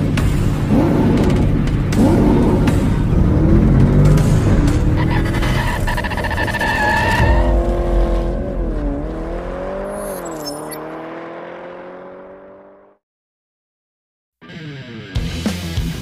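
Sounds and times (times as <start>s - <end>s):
car engine running hard: 0.0s - 6.6s
tyre screeching: 4.8s - 7.9s.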